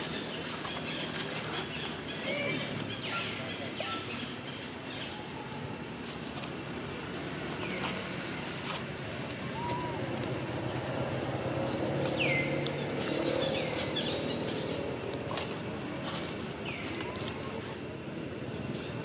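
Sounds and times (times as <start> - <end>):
high animal calls: 9.4 - 10.2
lower arched animal call: 9.4 - 10.2.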